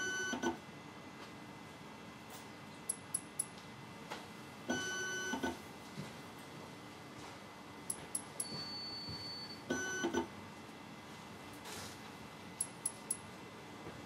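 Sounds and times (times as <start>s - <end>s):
sharp mechanical ticks: 2.9s - 3.5s.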